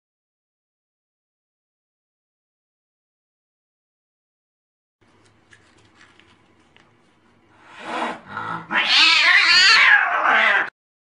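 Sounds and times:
cat yowling: 8.4 - 10.8.

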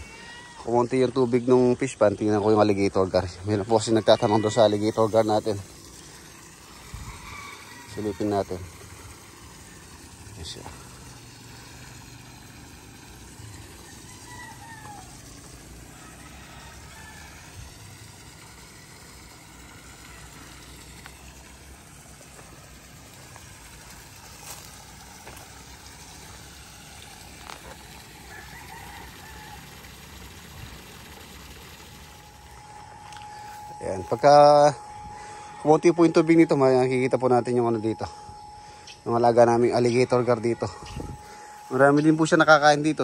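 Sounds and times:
distant rooster crowing: 0.0 - 1.0, 3.4 - 21.5, 22.3 - 39.1, 39.9 - 42.4
background hiss: 17.5 - 43.0.

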